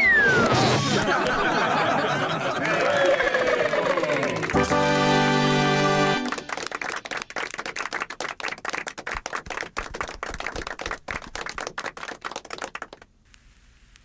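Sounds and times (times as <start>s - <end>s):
audience applauding: 0.1s - 13.1s.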